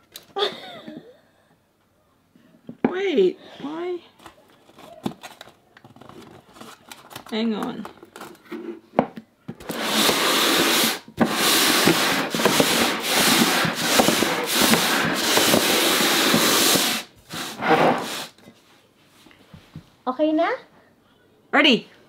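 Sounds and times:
colander and bowl scraping table: 0:08.4 - 0:08.9, 0:09.6 - 0:18.4.

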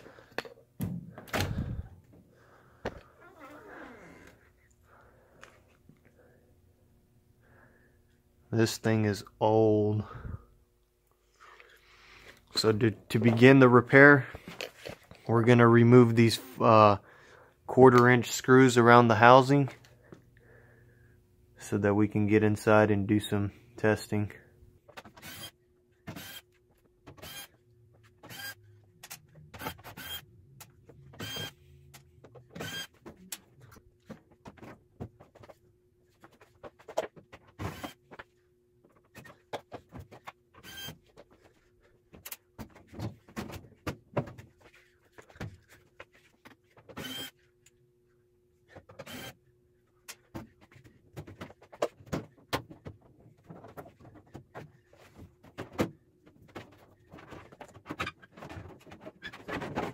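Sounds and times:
cordless drill running: 0:47.0 - 0:47.3, 0:49.1 - 0:49.3.

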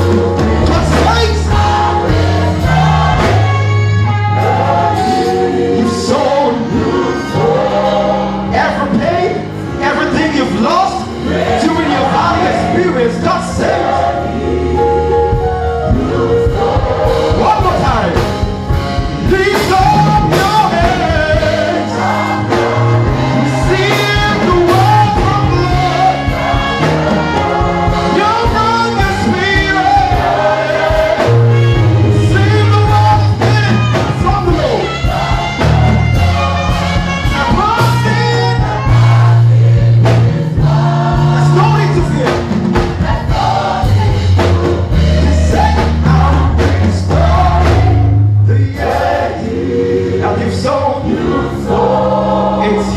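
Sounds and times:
gospel band accompaniment: 0:00.0 - 0:52.9
man singing into microphone: 0:19.2 - 0:21.6, 0:23.4 - 0:26.1.

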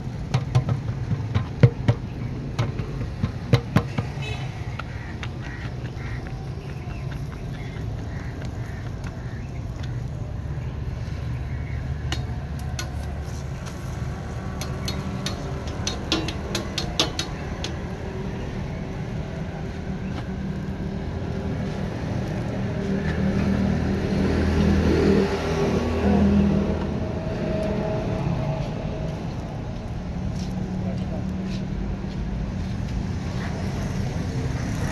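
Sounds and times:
low rumble of street traffic: 0:00.0 - 0:34.9
vehicle engine passing: 0:10.3 - 0:32.0.

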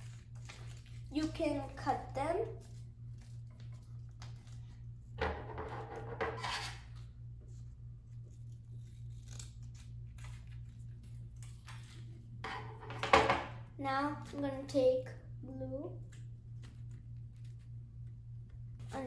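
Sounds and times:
paper rustling: 0:00.0 - 0:01.4
scissors snipping paper: 0:08.3 - 0:12.0.

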